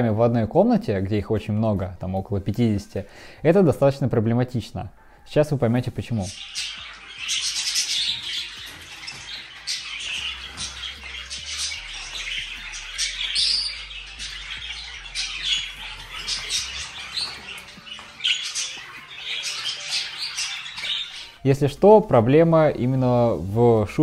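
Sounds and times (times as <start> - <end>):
budgerigars chattering and squawking: 5.7 - 23.8.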